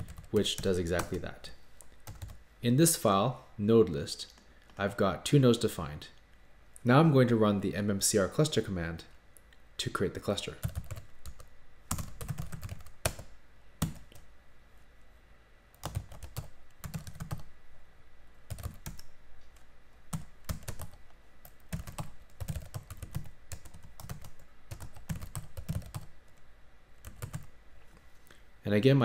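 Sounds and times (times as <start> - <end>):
computer keyboard typing: 0.0 - 1.2, 2.0 - 2.4, 10.6 - 14.2, 15.8 - 17.5, 18.5 - 19.1, 20.1 - 26.1, 27.0 - 27.5.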